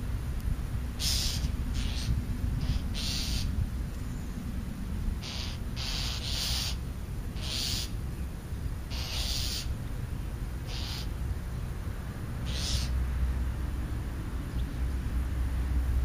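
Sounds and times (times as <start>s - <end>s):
crow cawing: 1.0s - 3.5s, 5.2s - 6.8s, 7.4s - 7.9s, 8.9s - 9.7s, 10.7s - 11.1s, 12.4s - 12.9s.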